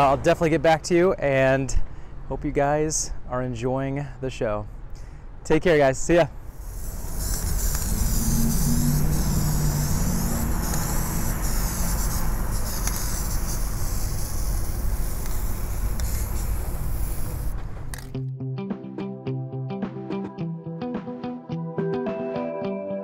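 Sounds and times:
low rumble: 6.5 - 12.6
deep hum: 6.5 - 12.7
aerosol spray can hissing: 6.5 - 18.0.

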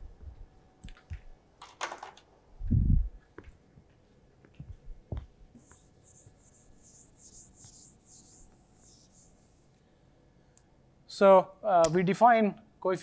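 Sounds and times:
eraser wiping a whiteboard: 5.6 - 9.8.

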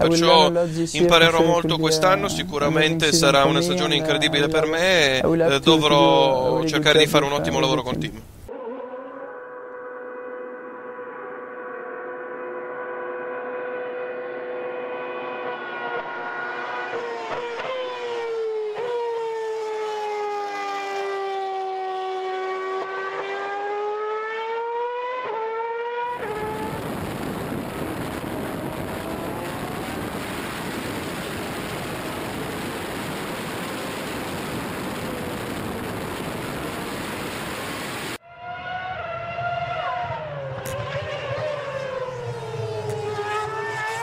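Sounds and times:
race car engine at high revs: 12.6 - 18.9, 22.2 - 38.2, 39.7 - 44.0
wind noise: 26.2 - 38.2.

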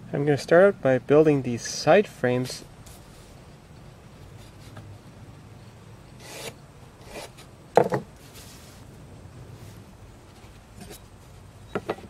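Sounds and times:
sharp knocks: 7.8 - 8.1.

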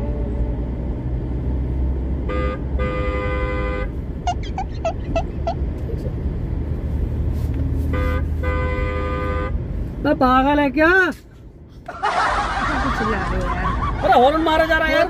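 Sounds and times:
engine and road noise: 0.0 - 15.0
car horn beeps and honks: 2.2 - 5.6, 7.8 - 9.7.

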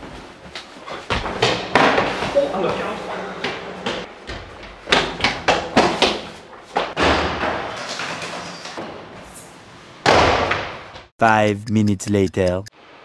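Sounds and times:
running footsteps on hard floor: 0.0 - 7.0.

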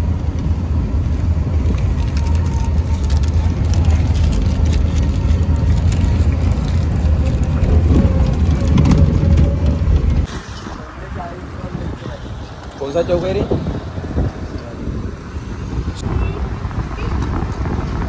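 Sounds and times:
vehicle and road rumble: 0.0 - 18.0
crackles: 1.6 - 11.1.

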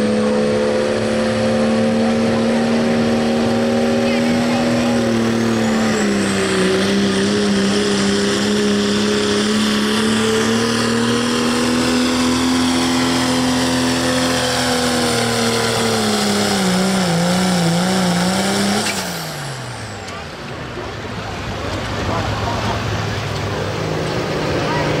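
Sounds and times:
diesel engine running under load: 0.0 - 25.0.

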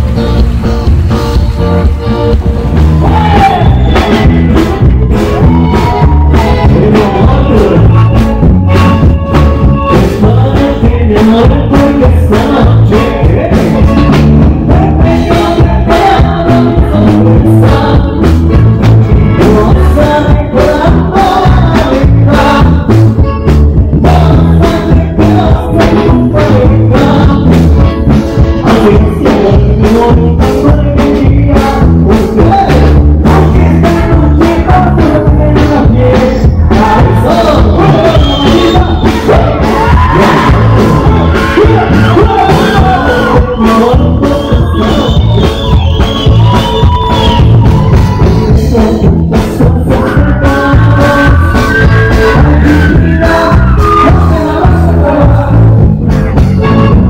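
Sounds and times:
drum kit dance beat: 0.0 - 57.0
guitars: 0.0 - 57.0
person singing into microphone: 3.0 - 57.0
saxophone: 56.2 - 57.0.

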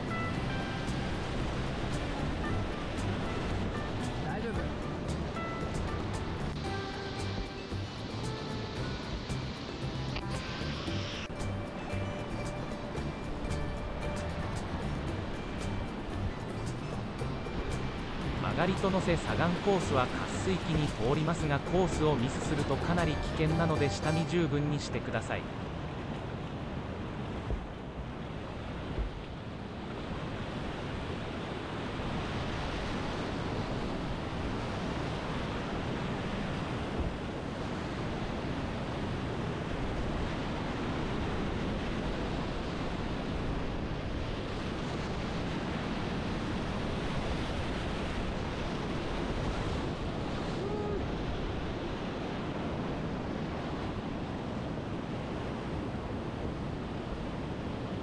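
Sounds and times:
rapids rushing water: 0.0 - 58.0.

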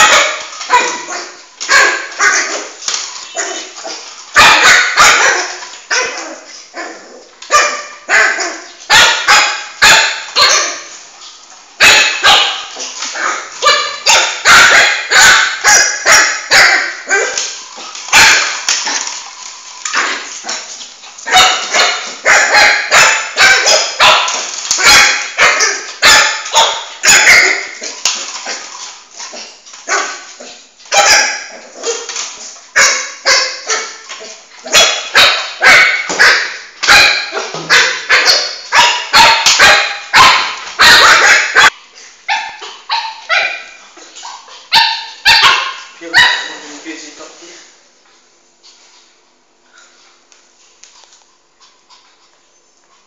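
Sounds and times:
puppy barking: 0.0 - 10.9, 11.8 - 19.1, 21.2 - 28.6, 29.8 - 30.3, 30.9 - 46.7.

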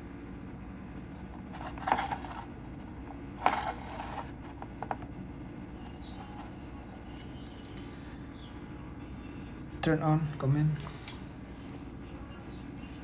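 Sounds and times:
steady low hum: 0.0 - 13.0
plastic model scraping: 1.5 - 5.0.

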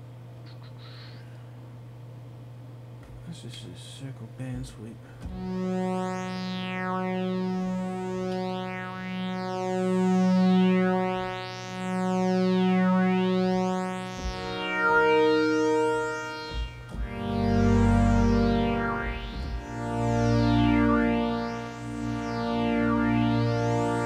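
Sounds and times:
synthesizer with sweeping filter: 5.2 - 24.0.

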